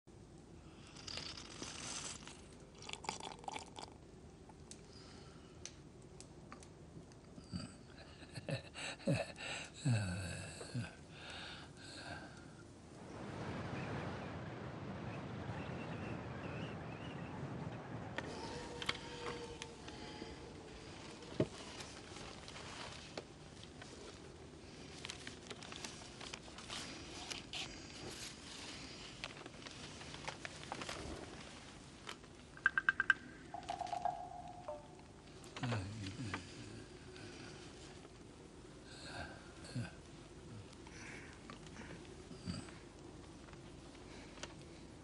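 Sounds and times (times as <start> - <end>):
man slurping from a bowl: 1.3 - 4.0
paper rustling and crackling: 18.2 - 32.3.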